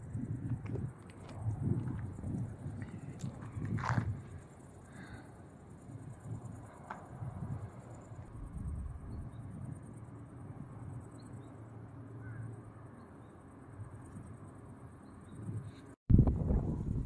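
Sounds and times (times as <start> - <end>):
wind rumble on microphone: 0.0 - 11.5, 15.2 - 17.0.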